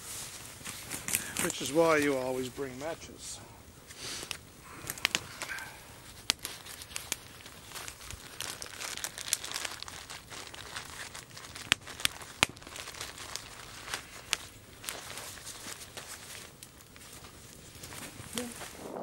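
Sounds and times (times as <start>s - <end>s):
wrapper crinkling and rustling: 0.0s - 19.0s
sharp snaps: 4.2s - 7.2s.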